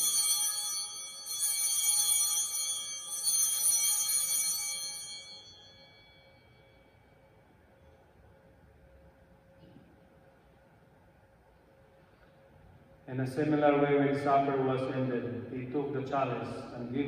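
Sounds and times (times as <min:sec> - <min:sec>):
small hand bells ringing: 0:00.0 - 0:07.2.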